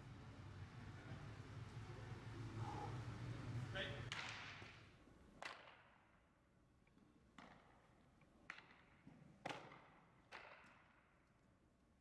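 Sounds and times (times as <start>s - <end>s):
baseball knocks echoing in hall: 4.0s - 6.4s, 7.1s - 11.4s.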